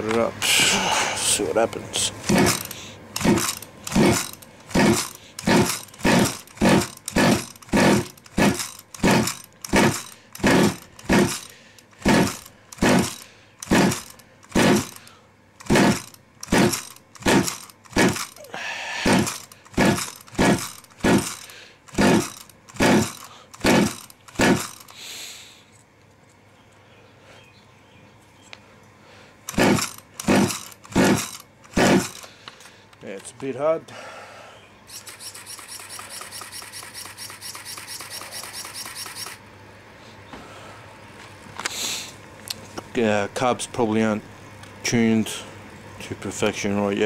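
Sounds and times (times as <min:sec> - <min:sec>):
engine pull-starter yanked: 0:02.2 - 0:25.0, 0:29.5 - 0:33.3, 0:34.9 - 0:39.4
engine turning over: 0:02.2 - 0:25.0, 0:29.5 - 0:32.4, 0:34.9 - 0:39.4.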